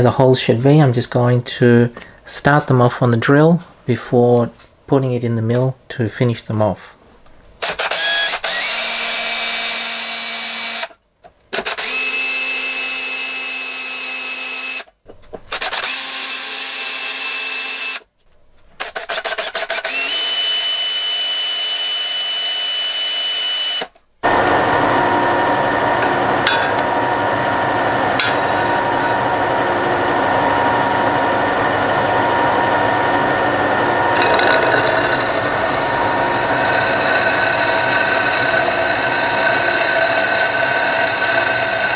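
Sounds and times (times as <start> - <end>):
cordless drill whining: 7.6 - 10.9, 11.6 - 14.9, 15.5 - 18.0, 19.3 - 26.1, 33.7 - 41.9
milling machine boring metal: 7.7 - 10.8, 11.7 - 14.7, 33.7 - 41.9.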